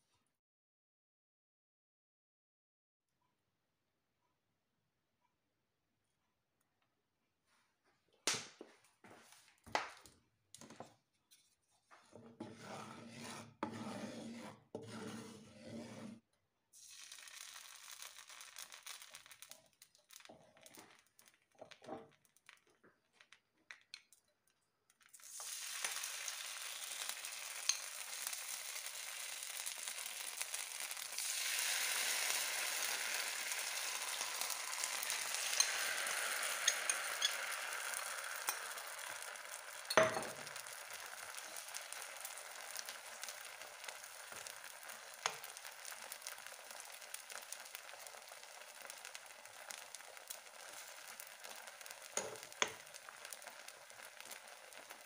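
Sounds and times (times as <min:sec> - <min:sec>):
batter poured into hot oil: 0:16.7 - 0:55.0
hot oil sizzling in a pan: 0:16.8 - 0:22.6, 0:25.0 - 0:55.0
cookware clicking and knocking: 0:39.9 - 0:40.4, 0:52.2 - 0:52.8.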